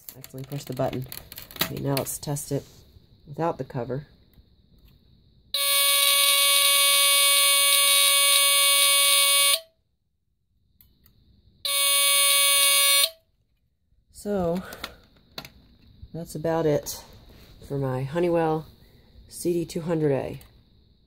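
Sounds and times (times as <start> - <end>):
raspy smoke alarm tone: 5.5 - 9.8, 11.6 - 13.2.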